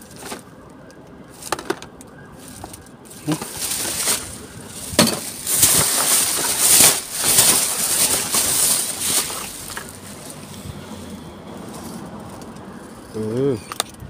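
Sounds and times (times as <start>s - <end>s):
plastic bags rustling: 1.3s - 11.9s.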